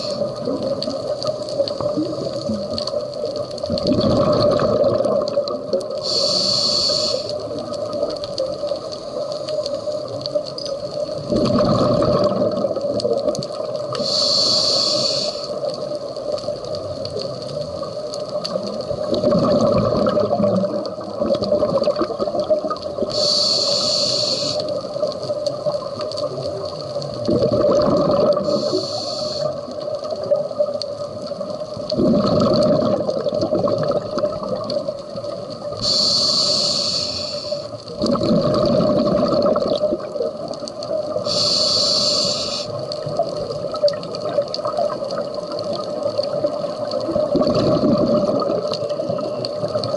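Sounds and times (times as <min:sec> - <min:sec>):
regulator inhalation hiss: 0:00.0 - 0:00.6, 0:06.0 - 0:07.6, 0:13.9 - 0:15.7, 0:23.0 - 0:25.0, 0:28.4 - 0:29.8, 0:35.7 - 0:37.9, 0:41.1 - 0:42.8
exhalation bubbles rushing: 0:03.7 - 0:06.1, 0:11.2 - 0:14.0, 0:18.9 - 0:23.2, 0:27.2 - 0:28.8, 0:31.9 - 0:35.8, 0:38.0 - 0:41.2, 0:43.2 - 0:49.9.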